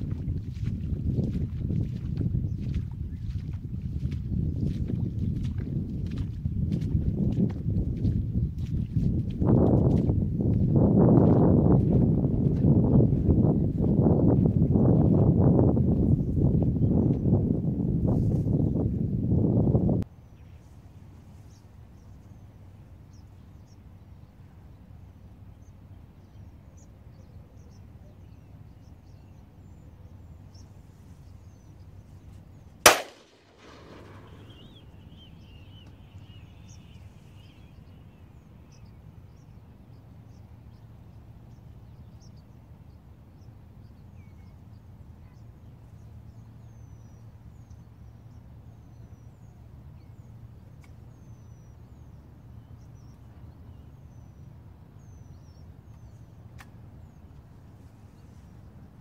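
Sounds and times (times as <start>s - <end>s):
shotgun shot: 32.9s - 34.6s.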